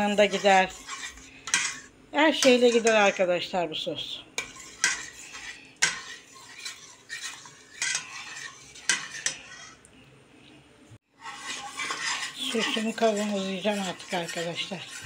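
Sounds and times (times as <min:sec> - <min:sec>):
metal spoon scraping pot: 0:00.0 - 0:03.3, 0:04.4 - 0:09.9, 0:11.1 - 0:15.0.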